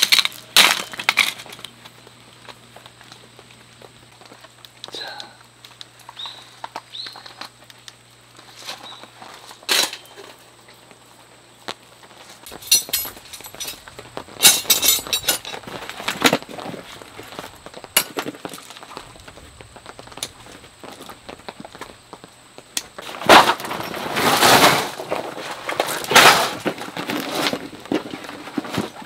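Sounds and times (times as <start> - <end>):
metal tent pegs clinking: 12.5 - 13.8, 14.4 - 16.3.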